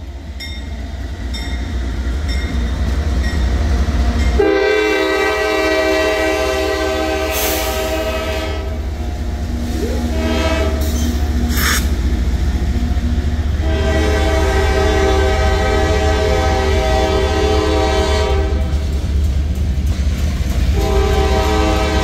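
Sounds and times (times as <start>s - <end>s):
freight train rumbling: 0.0s - 22.0s
train air horn: 4.4s - 8.8s, 9.7s - 11.9s, 13.6s - 18.8s, 20.7s - 22.0s
high hissing: 10.8s - 12.1s.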